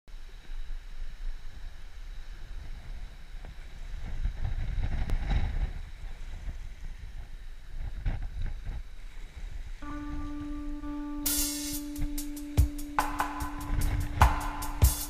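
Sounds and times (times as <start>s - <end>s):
wind buffeting microphone: 2.4s - 11.2s, 13.3s - 15.0s
held musical note: 9.8s - 15.0s.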